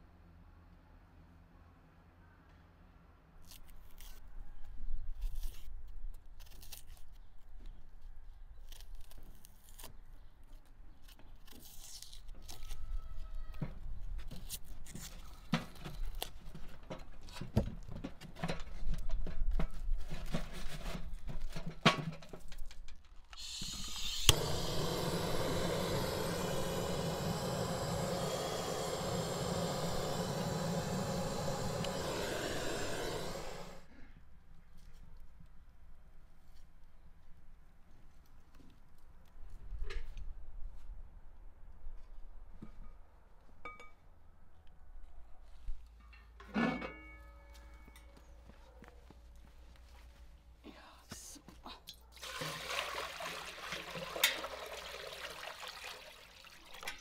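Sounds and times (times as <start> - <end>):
gas torch hissing: 23.4 - 33.9.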